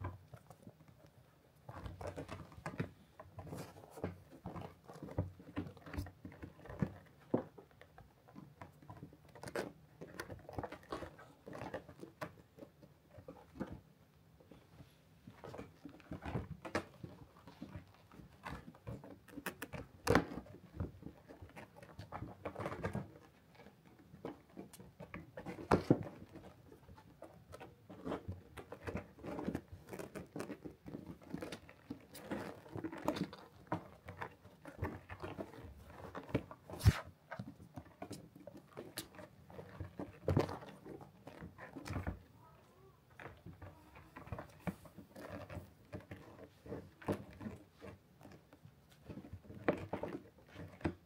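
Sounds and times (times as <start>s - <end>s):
cats scrabbling on felt bed: 14.5s - 42.3s.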